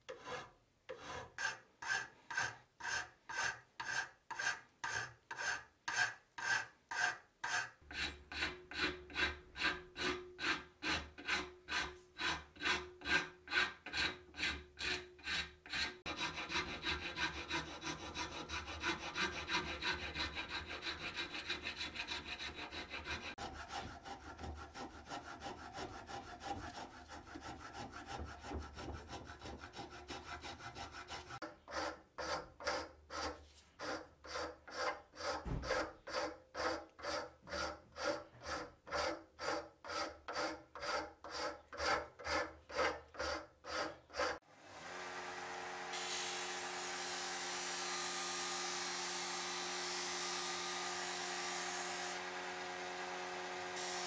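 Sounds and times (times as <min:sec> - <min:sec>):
hand file rasping on wood: 0:00.0 - 0:44.4
electric disc sander humming: 0:44.6 - 0:54.0
wood hissing against sanding disc: 0:53.7 - 0:54.0.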